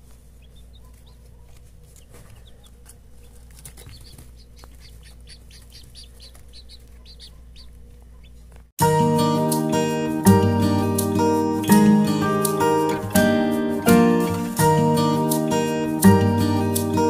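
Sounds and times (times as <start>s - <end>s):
chicks peeping: 0.0s - 8.7s.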